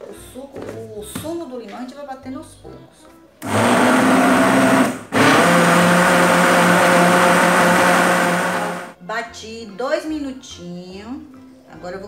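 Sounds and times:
kitchen blender running: 3.4s - 9.0s.

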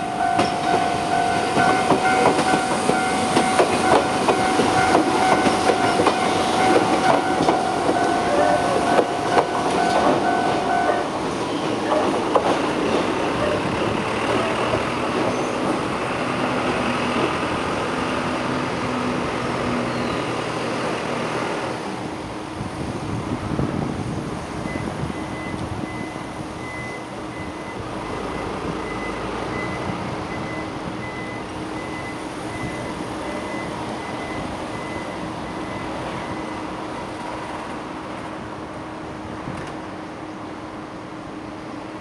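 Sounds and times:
electric train running: 0.0s - 19.4s.

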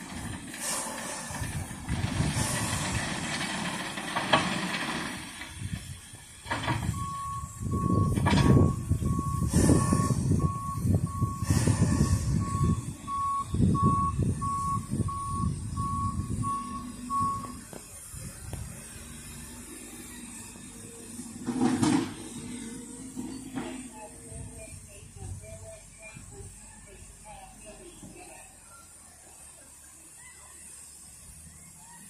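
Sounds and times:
steam hissing: 0.0s - 6.4s, 9.0s - 21.4s
low diesel engine noise: 0.0s - 32.0s
vehicle reversing alarm beeping: 6.4s - 21.5s, 22.1s - 32.0s.

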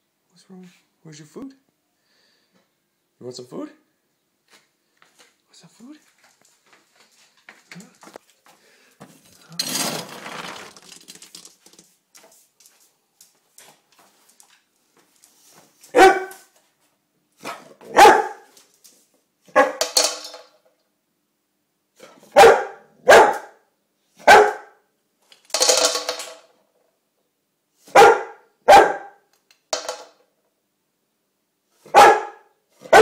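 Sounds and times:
dog barking: 15.9s - 16.5s, 17.4s - 18.5s, 19.5s - 19.8s, 22.0s - 24.8s, 27.9s - 29.3s, 31.8s - 33.0s.

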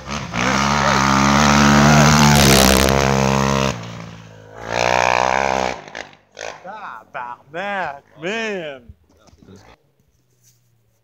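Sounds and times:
rally car engine revving: 0.0s - 8.4s.

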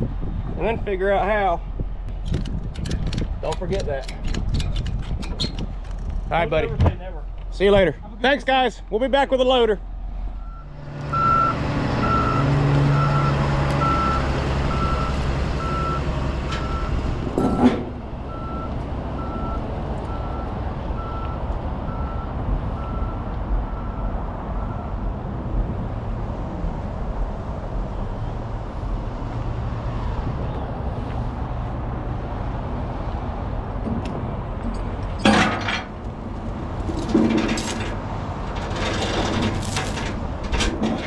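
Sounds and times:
diesel truck engine running: 9.8s - 24.7s
backup alarm beeping: 10.4s - 24.9s.

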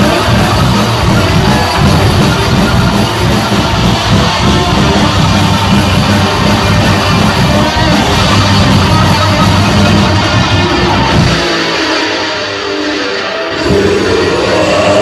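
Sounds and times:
death metal band playing live: 0.0s - 15.0s.

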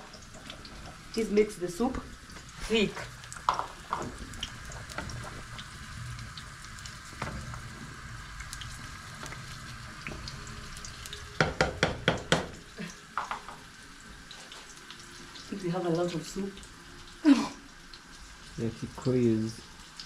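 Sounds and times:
wooden spoon stirring pot: 0.0s - 10.4s
food sizzling: 0.0s - 20.0s
spoon knocking metal pot: 11.4s - 12.6s.

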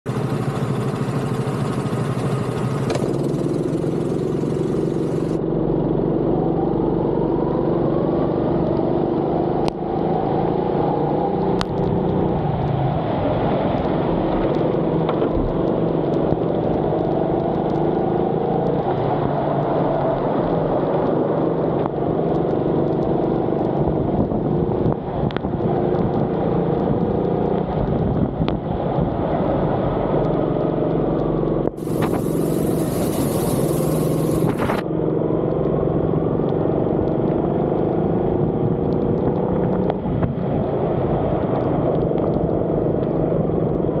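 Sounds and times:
go-kart engine revving: 0.1s - 5.4s, 31.8s - 34.8s.

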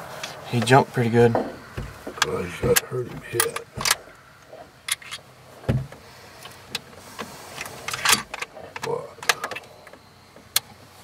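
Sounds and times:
dull thump: 1.2s - 4.1s, 5.6s - 6.0s
gear clicking and knocking: 1.3s - 4.1s.

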